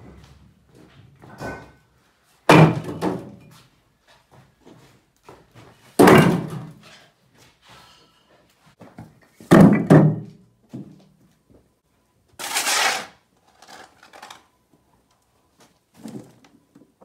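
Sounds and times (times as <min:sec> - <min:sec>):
bricks thudding into metal cart: 0:02.5 - 0:03.4, 0:06.0 - 0:06.7, 0:09.5 - 0:10.3.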